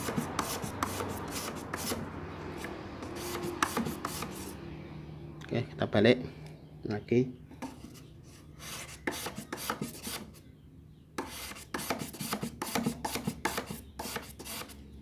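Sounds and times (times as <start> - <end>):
blade rasping on sandpaper: 0.0 - 4.6, 8.6 - 10.4, 11.2 - 14.8.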